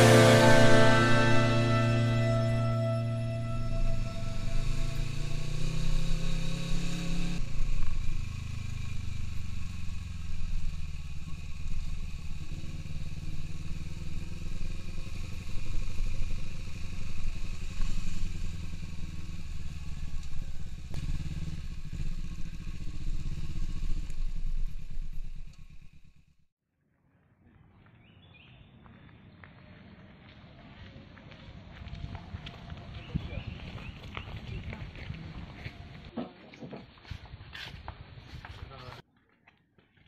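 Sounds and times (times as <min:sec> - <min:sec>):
motorcycle engine revving: 0:00.0 - 0:26.5.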